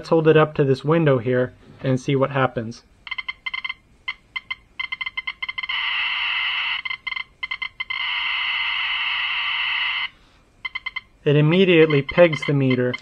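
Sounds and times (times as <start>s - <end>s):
radiation meter clicking: 11.8s - 13.0s.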